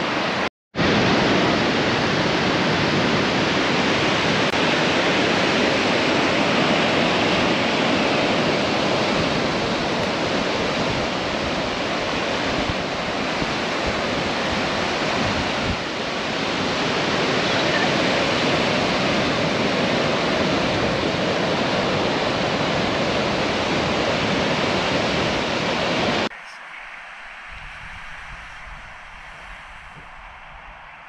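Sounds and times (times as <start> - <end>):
waves breaking on beach: 0.0 - 31.0
wind on microphone: 0.0 - 31.0.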